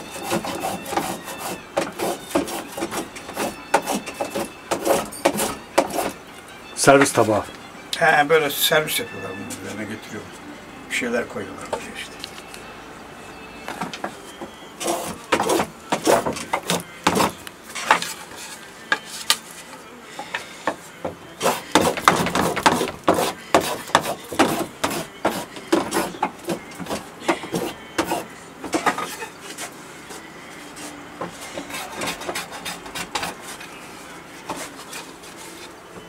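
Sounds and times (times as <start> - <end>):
hand plane shaving wood: 0.0 - 6.2, 14.8 - 19.2, 21.4 - 28.3, 30.8 - 33.8, 34.4 - 35.8.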